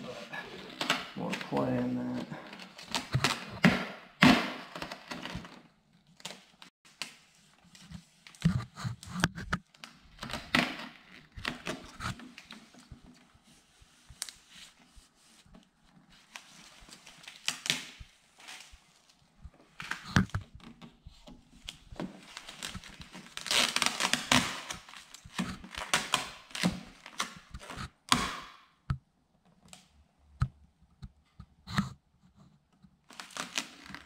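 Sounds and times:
plastic film crinkling: 0:15.5 - 0:20.2, 0:21.5 - 0:27.8, 0:33.1 - 0:34.0.

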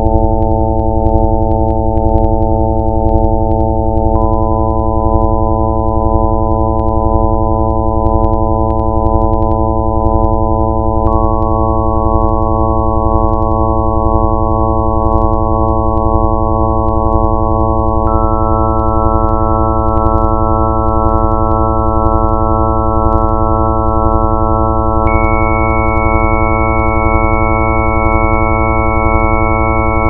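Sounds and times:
electronic drone of sine tones: 0:00.0 - 0:30.0
higher electronic tone: 0:17.2 - 0:30.0.

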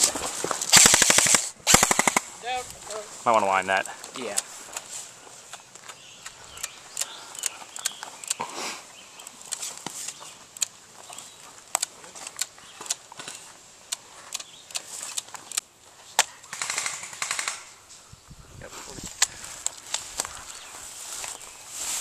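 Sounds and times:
airsoft gun single shots: 0:00.7 - 0:02.3
airsoft rifle full-auto burst: 0:00.7 - 0:02.3, 0:16.5 - 0:17.8.

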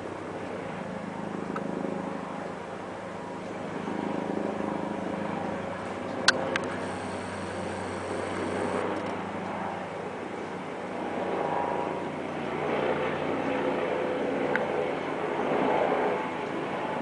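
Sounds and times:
helicopter flying overhead: 0:00.0 - 0:17.0
sharp clicks: 0:06.3 - 0:09.2.

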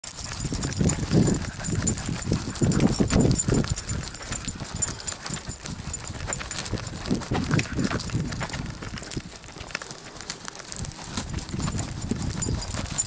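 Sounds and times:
fine ticks: 0:00.1 - 0:13.0
camera rubbing and bumping: 0:00.4 - 0:09.3.

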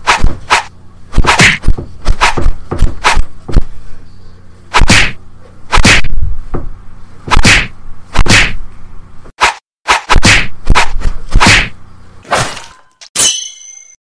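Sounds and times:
punch and slap whacks: 0:00.0 - 0:03.3, 0:04.7 - 0:06.2, 0:07.3 - 0:08.6, 0:09.4 - 0:12.6.

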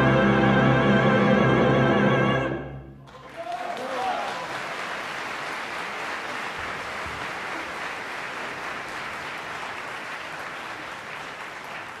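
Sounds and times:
audience applauding: 0:03.0 - 0:12.0.

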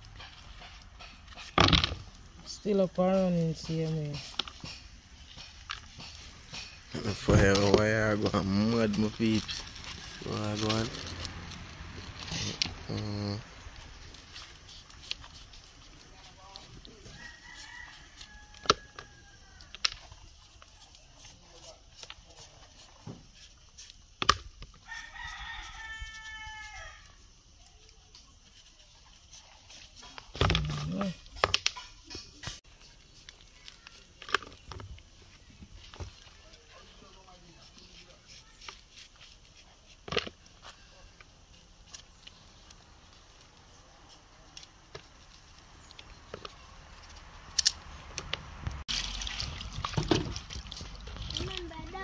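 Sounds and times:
knife scraping pumpkin rind: 0:00.0 - 0:34.7, 0:35.3 - 0:47.8
rooster crowing: 0:17.0 - 0:19.7, 0:24.8 - 0:27.2
water splashing in plastic basin: 0:48.9 - 0:51.7.

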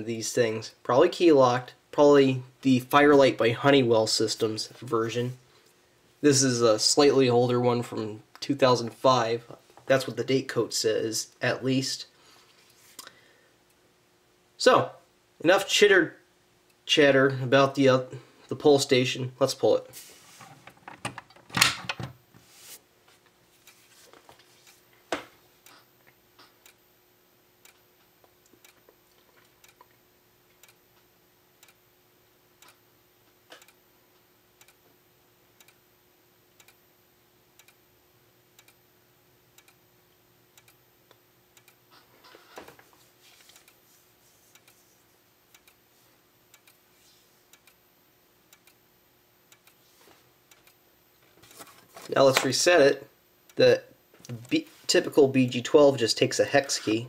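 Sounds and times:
strobe ticking: 0:27.6 - 0:41.9, 0:44.5 - 0:46.9, 0:47.5 - 0:49.8, 0:50.4 - 0:51.1.

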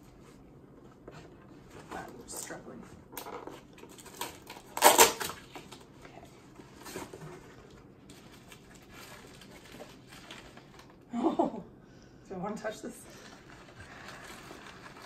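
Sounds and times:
plastic wrapping crinkling: 0:08.0 - 0:11.0, 0:13.1 - 0:15.0.

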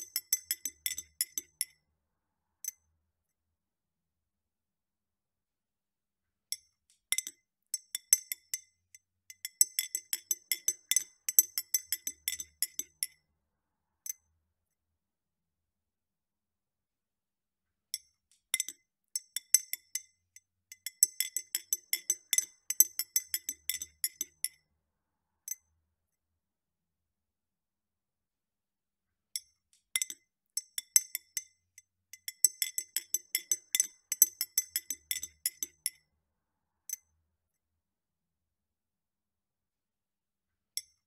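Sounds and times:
metal spoon clinking in glass: 0:00.0 - 0:01.7, 0:09.3 - 0:13.2, 0:20.7 - 0:24.6, 0:32.1 - 0:36.0.

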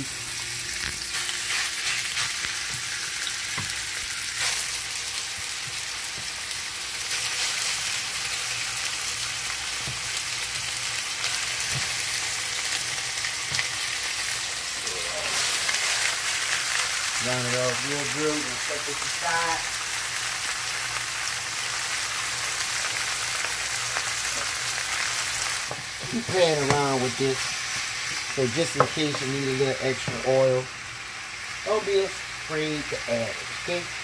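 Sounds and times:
meat sizzling in hot oil: 0:00.0 - 0:34.0.

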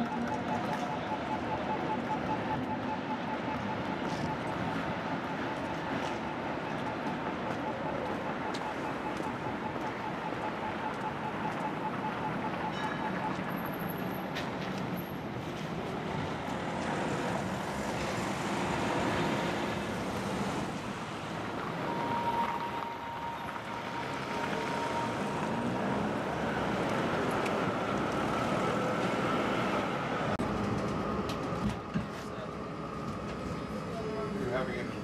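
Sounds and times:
tram rumbling and rattling: 0:12.7 - 0:35.0.

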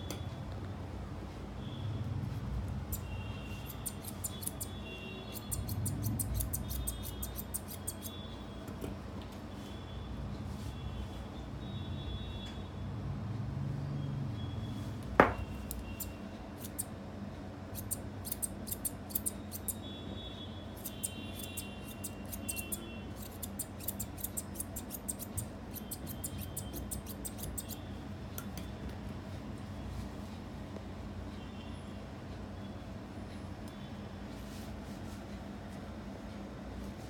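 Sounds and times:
scissors snipping hair: 0:03.6 - 0:04.7, 0:05.3 - 0:08.2, 0:15.6 - 0:16.9, 0:17.7 - 0:19.8, 0:20.8 - 0:27.8.

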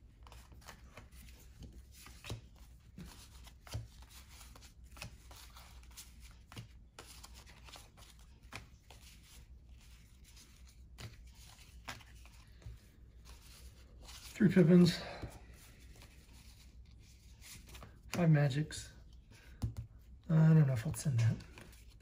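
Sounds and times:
cards rustling and sliding: 0:00.1 - 0:18.3, 0:21.3 - 0:22.0.

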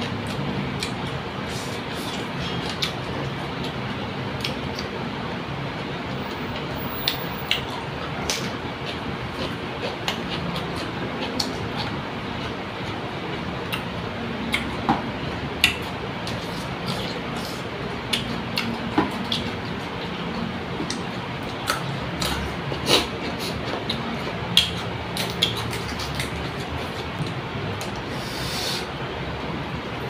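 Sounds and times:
steady background noise: 0:00.0 - 0:30.0
person chewing: 0:07.0 - 0:12.9, 0:14.5 - 0:14.8, 0:15.6 - 0:28.7.

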